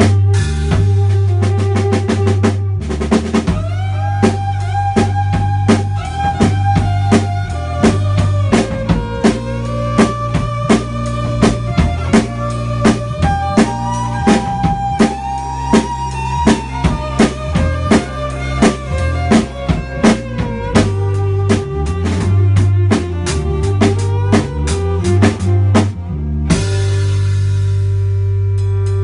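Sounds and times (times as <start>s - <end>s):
drum kit steady beat: 0.0s - 29.0s
electric bass: 0.0s - 29.0s
electric violin bowing long notes: 0.0s - 29.0s.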